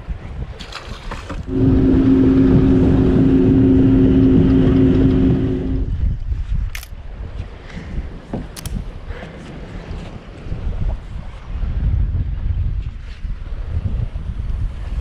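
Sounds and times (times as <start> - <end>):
motor humming: 1.5 - 6.0.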